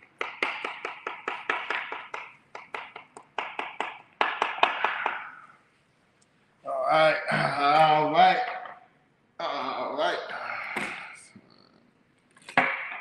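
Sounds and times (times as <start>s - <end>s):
knife chopping on cutting board: 0.2s - 5.3s.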